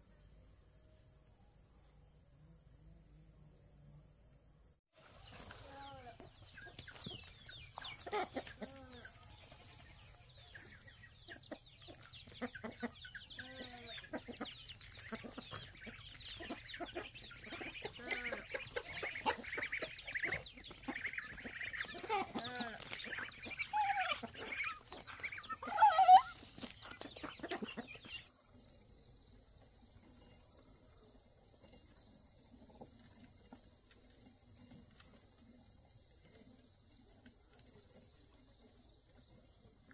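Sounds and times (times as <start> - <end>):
chickens clucking: 5.0 - 28.3.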